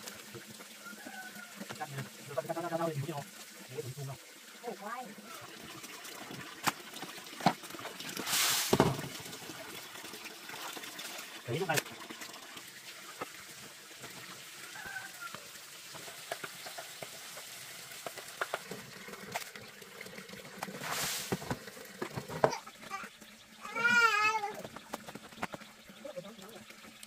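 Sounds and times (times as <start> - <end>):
water splash: 6.6 - 9.5, 20.6 - 21.7
animal call with wobbling pitch: 14.6 - 15.5.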